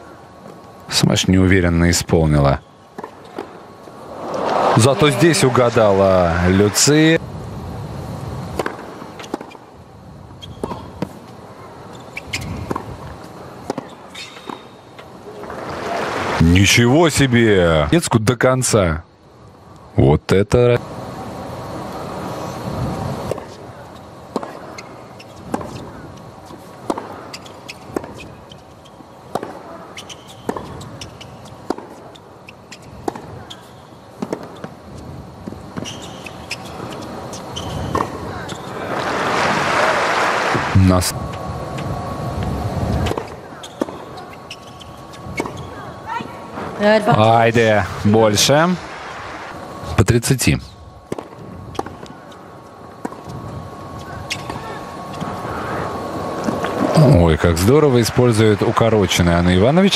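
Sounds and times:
low crowd hum: 0.0s - 59.9s
shoe squeaks: 10.4s - 10.8s, 11.9s - 12.7s, 13.8s - 14.8s, 23.9s - 26.6s, 27.2s - 29.1s, 29.7s - 33.9s, 35.8s - 38.8s, 43.1s - 46.2s, 54.0s - 55.4s
racket striking tennis ball: 26.8s - 27.3s, 29.3s - 29.7s.

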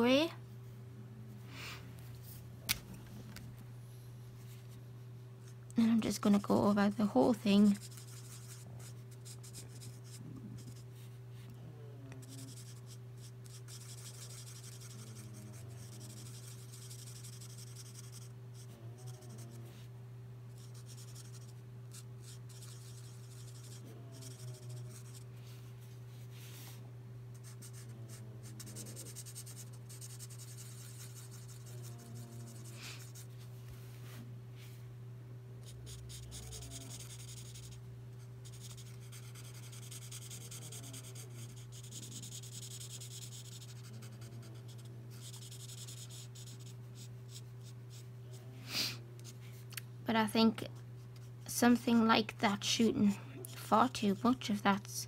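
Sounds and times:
steady low hum: 0.0s - 55.0s
marker rubbing on paper: 6.2s - 10.8s, 12.2s - 19.5s, 20.6s - 25.2s, 27.4s - 33.3s, 35.6s - 37.8s, 38.4s - 48.0s.

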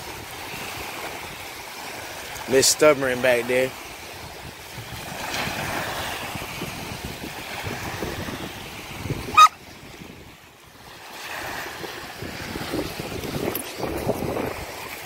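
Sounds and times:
small waves washing onto shore: 0.0s - 15.0s
wind buffeting microphone: 3.7s - 15.0s.

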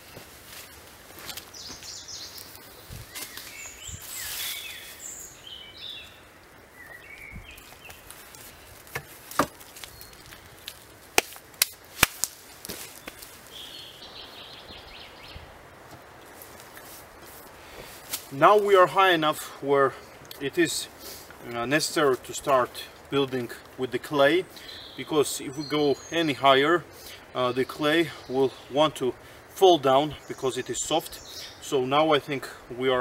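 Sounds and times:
small birds chirping: 0.0s - 10.9s, 12.8s - 17.0s, 17.6s - 33.0s
wood knocking on wood: 8.9s - 9.6s.

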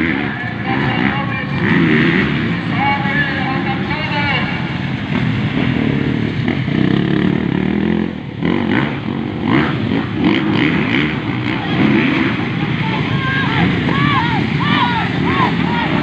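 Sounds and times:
motocross bikes revving: 0.0s - 16.0s.

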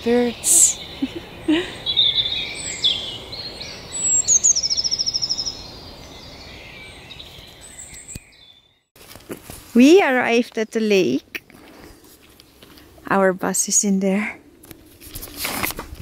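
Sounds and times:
birds singing: 0.0s - 8.9s
bird trill: 0.2s - 8.9s.

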